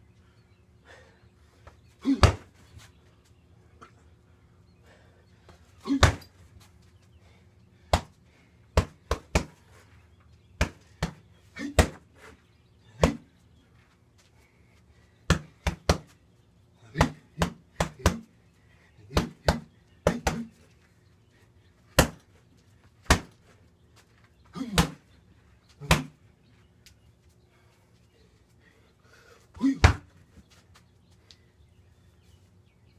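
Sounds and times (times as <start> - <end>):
strikes smacking punching bag: 2.1 - 2.5.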